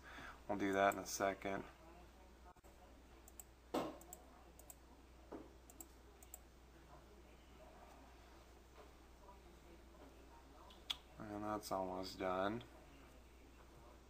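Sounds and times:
computer mouse clicks: 3.3s - 4.8s, 5.7s - 6.4s.

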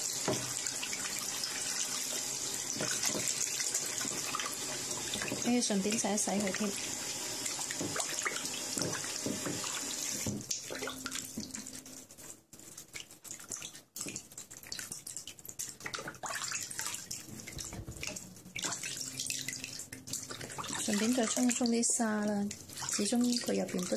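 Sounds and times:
water splashing and sloshing: 0.0s - 23.9s
tap running into pot: 8.8s - 10.5s.

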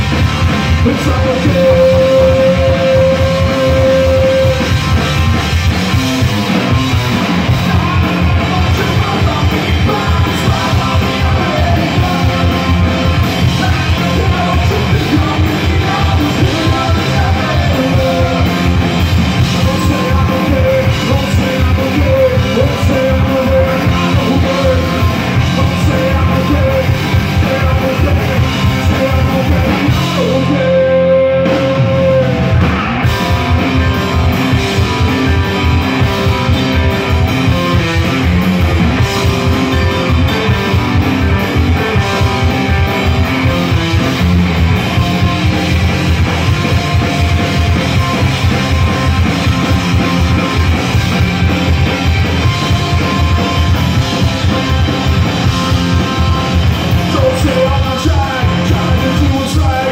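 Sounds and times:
live rock band playing: 0.0s - 59.9s
person singing: 0.7s - 4.8s, 7.5s - 32.6s, 56.9s - 59.9s.

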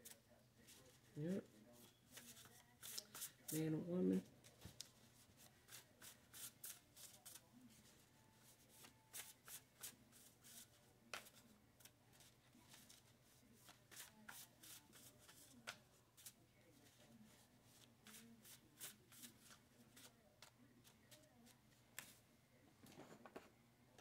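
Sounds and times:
cards being shuffled: 2.2s - 3.3s.

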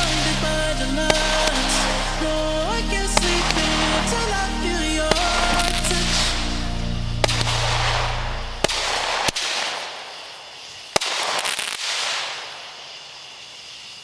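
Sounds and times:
firework bangs: 7.2s - 13.1s
firework hissing crackle: 7.2s - 14.0s.

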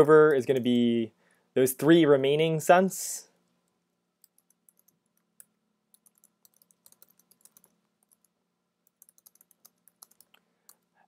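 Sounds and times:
faint steady hum: 0.0s - 11.0s
typing on keyboard: 4.2s - 8.3s, 8.9s - 10.9s.

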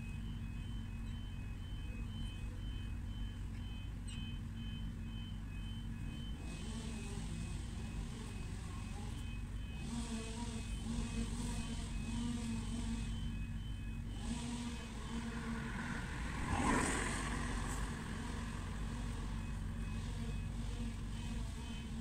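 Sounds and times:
low traffic hum: 0.0s - 22.0s
car passing by: 14.2s - 19.6s.

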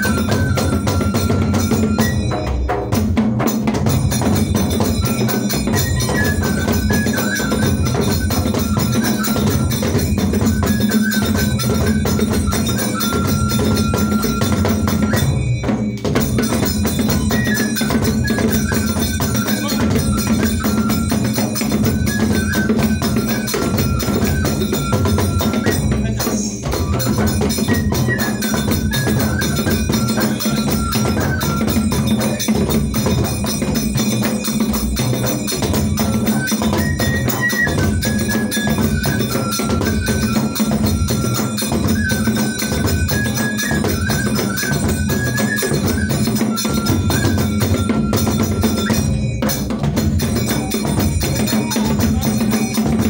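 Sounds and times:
fast drum and percussion: 0.0s - 53.0s
high repeating melody: 3.7s - 53.0s.

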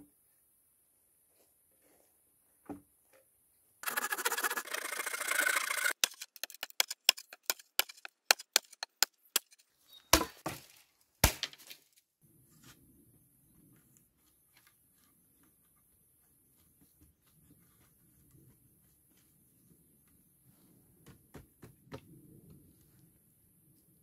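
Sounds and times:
hatchet chopping wood: 5.9s - 10.6s, 11.2s - 11.7s.

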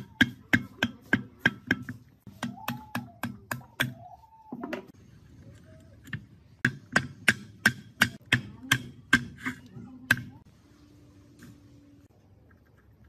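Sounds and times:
hammer tapping on metal: 6.1s - 9.5s.

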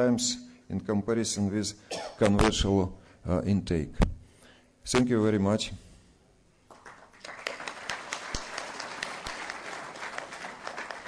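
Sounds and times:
audience applauding: 6.7s - 11.0s.

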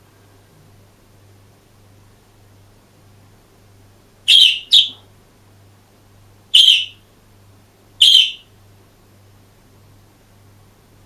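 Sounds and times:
budgerigar chirping: 4.3s - 5.0s, 6.6s - 7.0s, 8.0s - 8.5s.

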